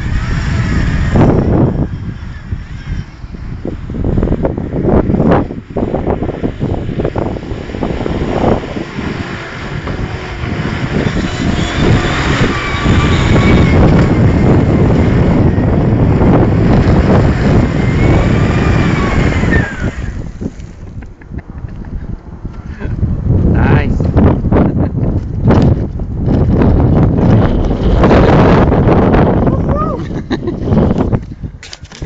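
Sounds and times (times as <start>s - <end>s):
rising and falling whine: 0.0s - 21.7s
engine working hard in mud: 0.0s - 21.8s, 24.5s - 31.2s.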